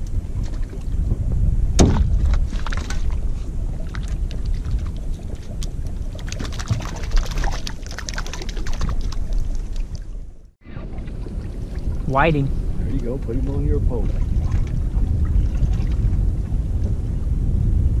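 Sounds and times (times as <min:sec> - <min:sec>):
water slapping against boat: 0:00.0 - 0:17.2
wind rumble on microphone: 0:00.0 - 0:18.0
fish splashing: 0:01.8 - 0:12.0.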